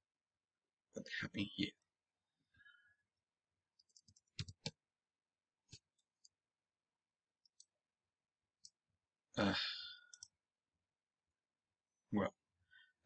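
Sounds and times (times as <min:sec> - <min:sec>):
mouse and keyboard clicks: 0:03.8 - 0:04.8.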